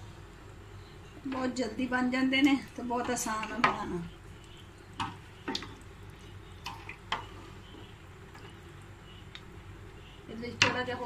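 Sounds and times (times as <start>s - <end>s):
spoon tapping a pot: 3.0s - 3.9s
liquid sloshing in a pot: 3.0s - 8.7s.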